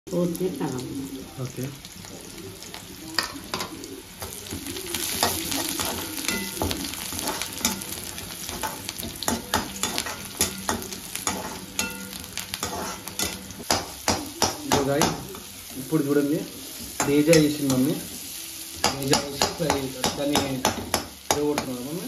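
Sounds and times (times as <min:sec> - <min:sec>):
onions sizzling in hot oil: 0:00.1 - 0:22.0
spatula scraping a pan: 0:03.6 - 0:15.7.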